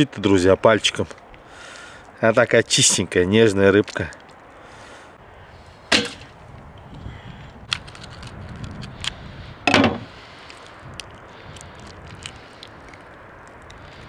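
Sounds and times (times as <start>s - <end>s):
sharp knocks: 5.9s - 6.3s.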